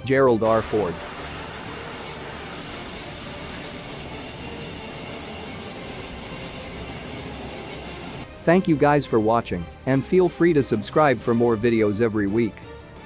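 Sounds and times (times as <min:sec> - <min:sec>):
turboprop engines at full power: 0:00.3 - 0:08.5.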